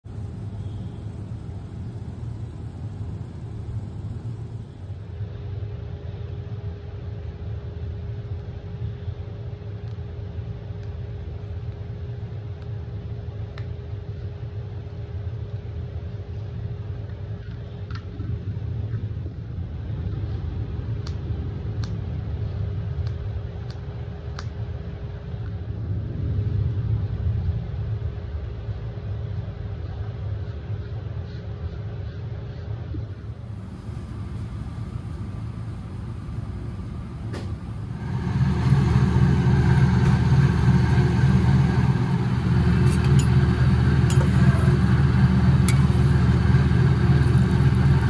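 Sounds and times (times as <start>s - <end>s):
kitchen machinery rumbling: 37.2s - 48.0s.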